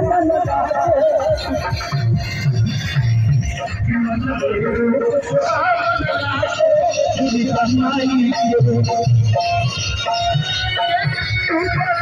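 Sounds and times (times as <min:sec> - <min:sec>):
sung melody: 0:00.0 - 0:12.0.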